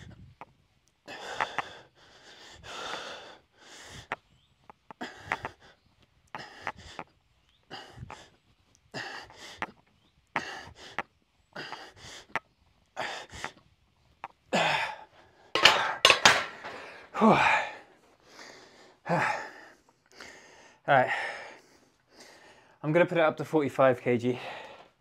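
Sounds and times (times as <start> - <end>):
man gasping and groaning: 1.0 - 4.1, 8.9 - 9.7, 14.5 - 21.6.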